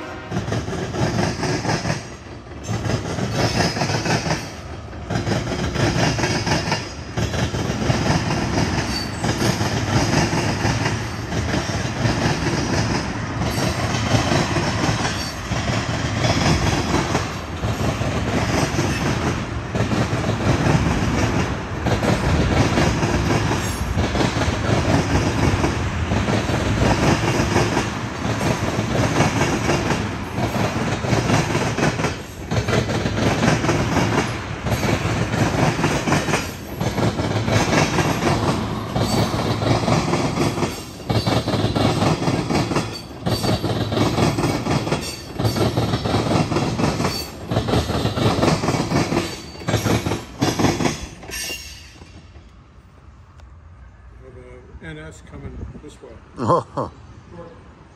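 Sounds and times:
wheels clickety-clack on rail joints: 0:00.0 - 0:53.6
train wheels on rails: 0:00.0 - 0:54.1.

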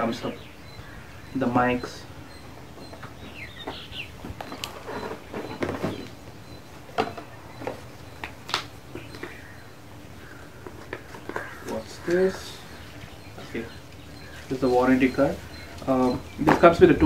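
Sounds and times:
bird chirps: 0:00.0 - 0:17.0
paper and packaging rustling: 0:04.3 - 0:06.2.

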